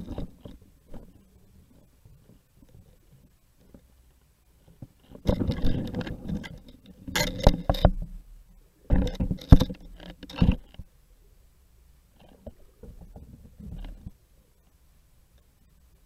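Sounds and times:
underwater knocks and clicks: 4.8 - 8.2, 8.9 - 10.9.

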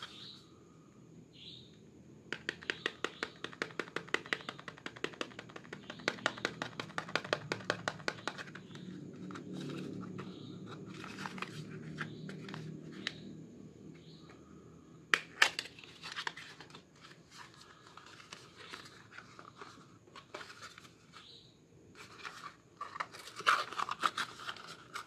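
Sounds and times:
fingernails tapping on cardboard: 2.3 - 9.4
rubbing and scratching on box: 22.0 - 25.0.

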